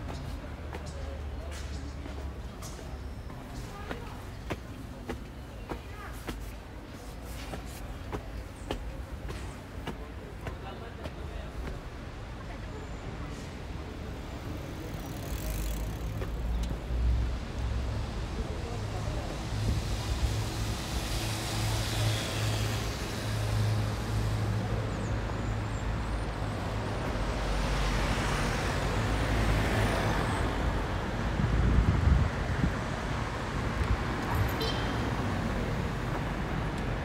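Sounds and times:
traffic engine rumble: 0.0s - 37.0s.

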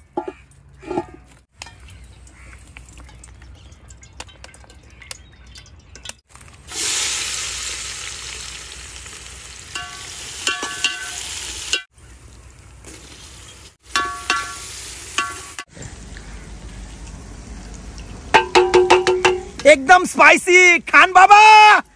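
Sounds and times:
onions sizzling in hot oil: 6.6s - 19.0s
metal ladle clinking against pot: 9.8s - 11.8s, 13.9s - 14.6s, 15.2s - 15.6s, 18.4s - 19.6s.

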